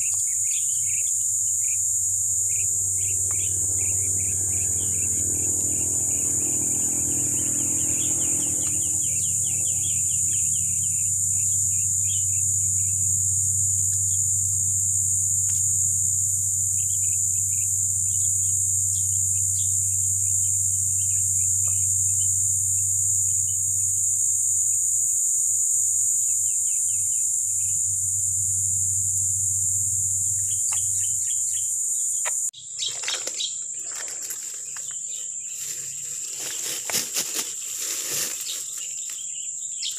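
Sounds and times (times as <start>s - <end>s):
birds chirping: 0.0s - 24.7s, 26.1s - 39.9s
low steady hum: 0.0s - 25.1s, 26.2s - 32.5s
insects droning: 0.0s - 39.9s.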